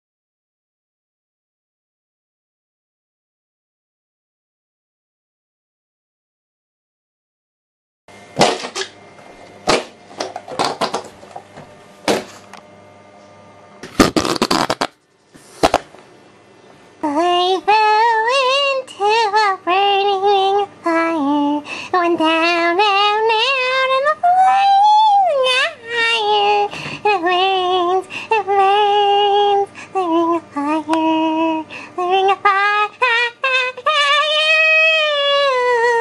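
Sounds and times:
high-pitched voice singing: 17.0 - 36.0.

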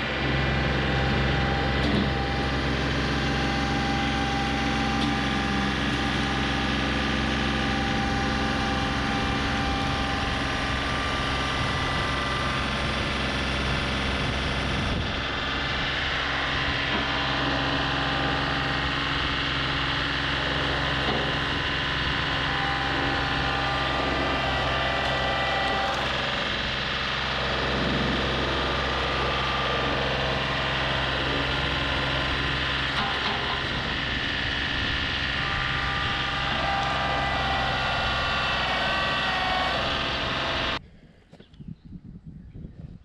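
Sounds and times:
loader bucket digging dirt: 0.0 - 40.8
tractor diesel engine running: 0.0 - 40.8.

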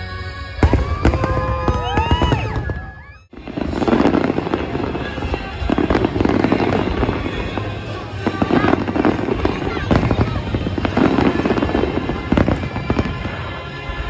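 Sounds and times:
firework whistles gliding in pitch: 0.6 - 7.7
firework bursts: 0.6 - 14.0
fireworks crackling and popping: 0.6 - 14.0.

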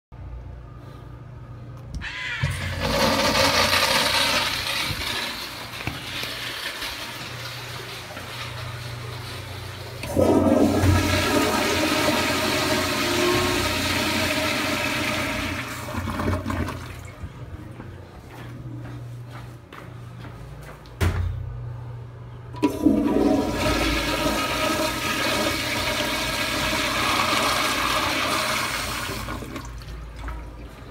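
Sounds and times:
urinal flushing water rush: 2.5 - 17.2, 22.6 - 30.9
toilet flush thump: 10.0 - 16.8.

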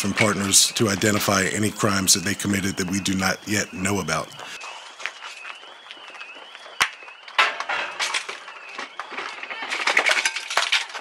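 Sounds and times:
alarm wailing: 0.0 - 11.0
broken glass crunching underfoot: 6.2 - 11.0.

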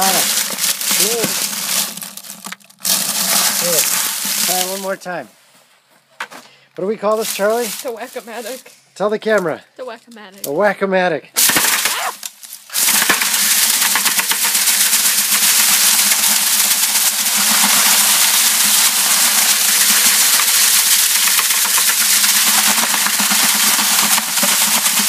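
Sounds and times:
chain clattering in bucket: 0.0 - 4.8, 12.9 - 25.0.

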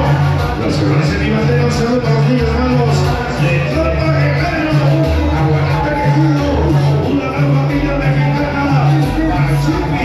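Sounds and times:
loud latin dance music: 0.0 - 10.0.

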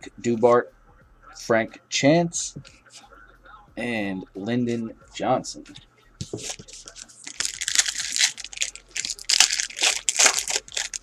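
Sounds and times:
wrapper tearing and crinkling: 6.5 - 11.0.

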